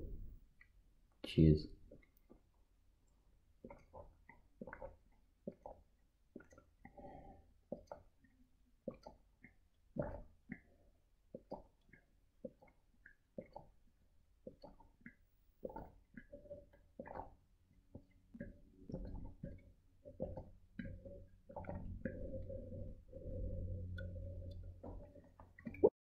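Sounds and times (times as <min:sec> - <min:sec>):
person gulping water: 0:03.5 - 0:25.9.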